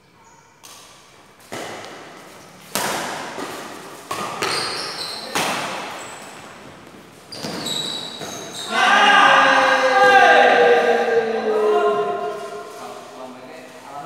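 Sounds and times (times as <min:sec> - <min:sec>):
racquets hitting shuttlecock: 0:00.6 - 0:08.5
shoes squeaking on court: 0:03.4 - 0:08.7.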